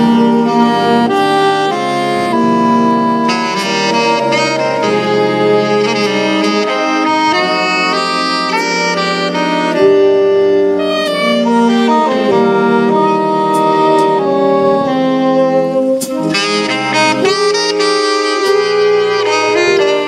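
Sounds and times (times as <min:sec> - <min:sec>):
saxophones playing in harmony: 0:00.0 - 0:20.0.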